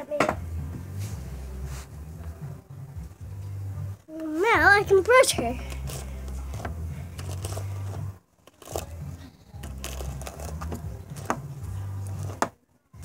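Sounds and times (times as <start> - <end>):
rustling: 5.6 - 12.5.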